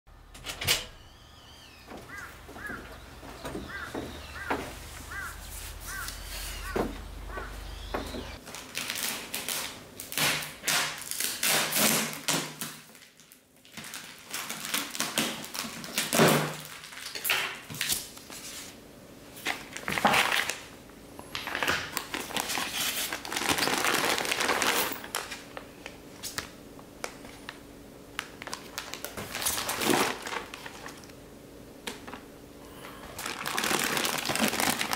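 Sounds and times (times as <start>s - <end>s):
plastic packs rustling and crinkling: 1.8s - 31.2s, 31.9s - 34.9s
knife cutting packing tape: 8.8s - 12.8s.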